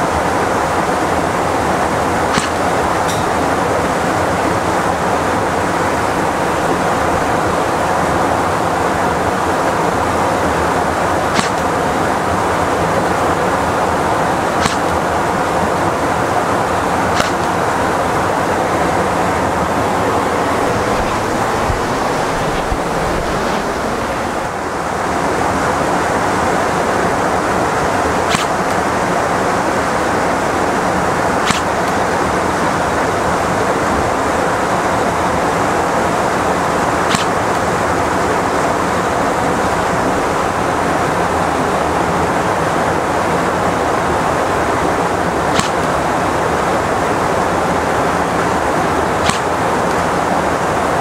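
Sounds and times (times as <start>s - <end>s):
motorcycle engine humming: 0.0s - 24.8s
wind and road noise: 0.0s - 51.0s.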